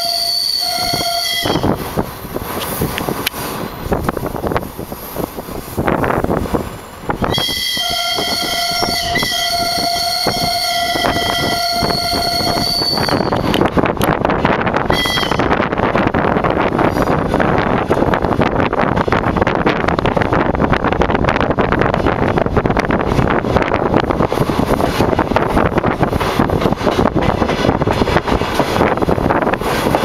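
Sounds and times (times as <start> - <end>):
train horn: 0.0 - 1.8, 7.2 - 13.6, 14.9 - 15.6
rail-joint clicks: 0.0 - 20.3, 21.9 - 30.0
train running: 0.0 - 30.0.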